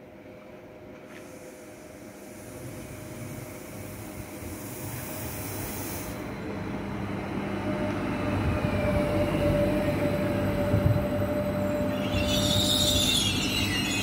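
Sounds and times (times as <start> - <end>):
electric train passing: 0.1 - 14.0.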